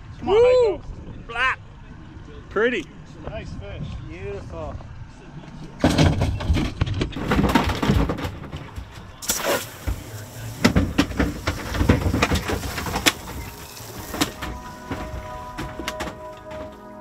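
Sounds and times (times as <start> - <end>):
brief hiss: 9.2 - 10.7
knocks and thuds on boat deck: 9.8 - 17.0.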